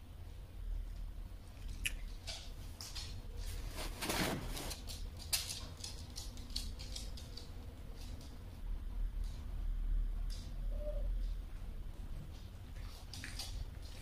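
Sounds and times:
dog claws clicking on wooden floor: 0:04.7 - 0:08.4, 0:12.3 - 0:14.0.

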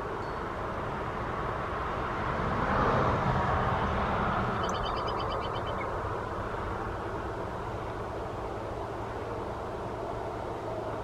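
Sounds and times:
outdoor background rush: 0:00.0 - 0:11.0
small bird trilling: 0:04.6 - 0:05.9.

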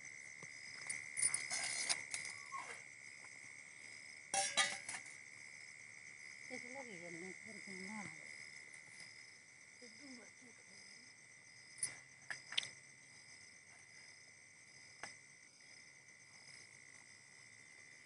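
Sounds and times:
insects chirping: 0:00.0 - 0:18.0
metallic clinks of vessels: 0:04.3 - 0:05.1.

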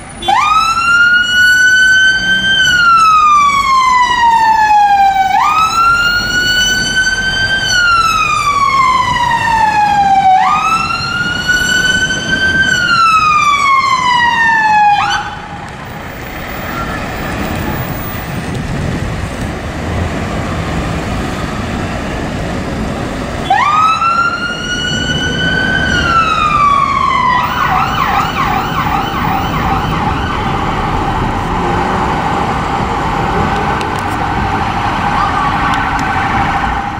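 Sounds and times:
fire engine siren wailing: 0:00.0 - 0:36.9
road traffic: 0:00.0 - 0:36.9
siren warbling yelp: 0:23.4 - 0:31.5, 0:35.0 - 0:36.9.

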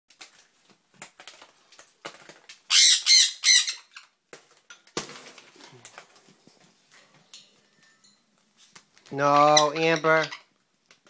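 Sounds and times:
parrot squawking: 0:02.7 - 0:04.1, 0:09.2 - 0:10.5.

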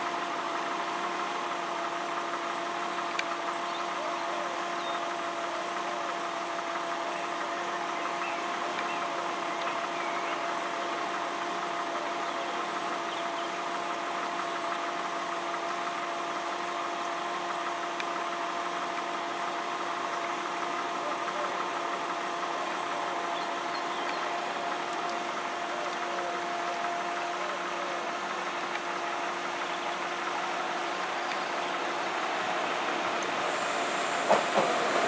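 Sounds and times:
faint bird chirps: 0:03.6 - 0:05.1, 0:23.2 - 0:24.4.

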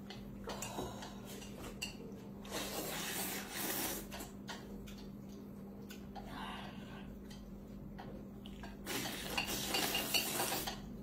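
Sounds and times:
faint steady hum: 0:00.0 - 0:11.0
noodles being slurped: 0:02.4 - 0:04.4, 0:08.7 - 0:10.9.

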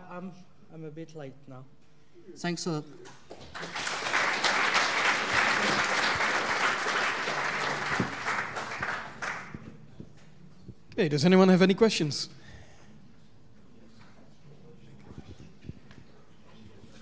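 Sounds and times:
audience applauding: 0:03.2 - 0:09.7.

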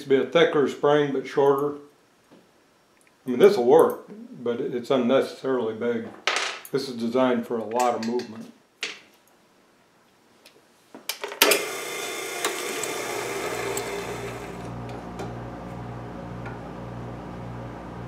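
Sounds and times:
bright whirring: 0:11.4 - 0:15.2
electric machine motor humming: 0:11.4 - 0:18.0.

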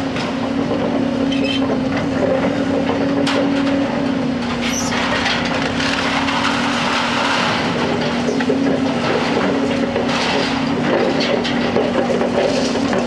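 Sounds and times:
excavator engine humming: 0:00.0 - 0:13.0.

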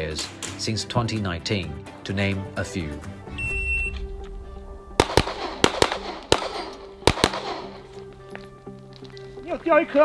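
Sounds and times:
background music: 0:00.0 - 0:10.0
shot timer beep: 0:03.4 - 0:04.0
rapid pistol shots: 0:05.0 - 0:07.9.

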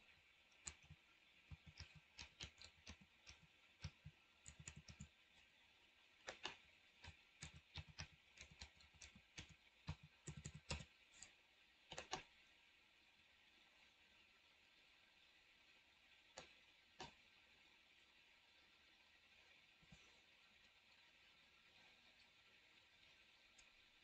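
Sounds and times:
keyboard typing: 0:00.5 - 0:05.2, 0:06.2 - 0:11.3, 0:11.9 - 0:12.2.

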